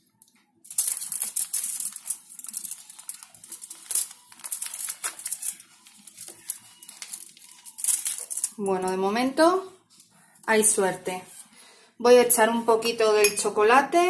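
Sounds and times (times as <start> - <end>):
aluminium foil crinkling: 0.6 - 11.5.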